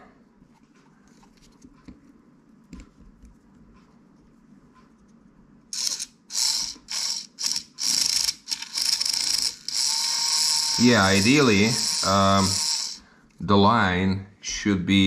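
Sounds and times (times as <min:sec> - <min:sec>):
electric line remover whirring: 0:05.7 - 0:13.2.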